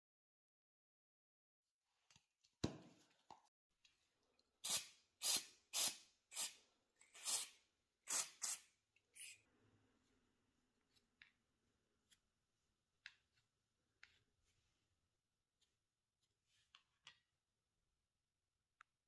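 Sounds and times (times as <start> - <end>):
aerosol spray can hissing: 4.6 - 9.4.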